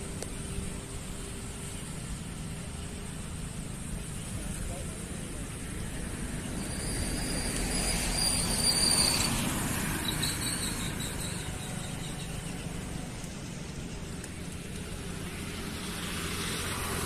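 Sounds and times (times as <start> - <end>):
vehicle passing rumble: 0.0 - 17.0
thin high squeal: 6.4 - 12.7.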